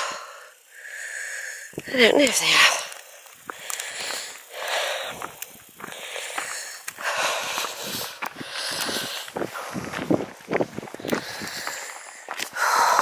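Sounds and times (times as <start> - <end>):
person breathing hard: 0.0 - 13.0.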